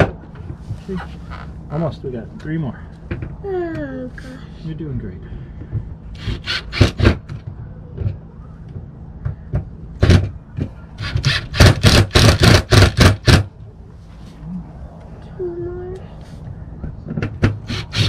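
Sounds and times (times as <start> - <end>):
cordless drill driving screws: 11.0 - 13.4.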